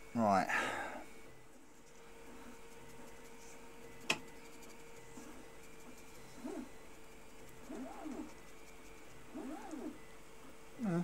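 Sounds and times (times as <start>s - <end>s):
faint steady hum: 0.0s - 11.0s
pigeon cooing: 6.4s - 6.7s, 7.6s - 8.4s, 9.3s - 10.0s.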